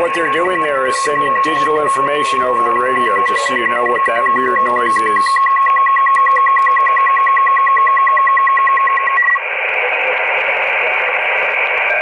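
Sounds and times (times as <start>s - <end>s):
higher tone pulsing: 0.0s - 9.4s
rushing data burst: 0.0s - 12.0s
steady radio tone: 0.0s - 12.0s.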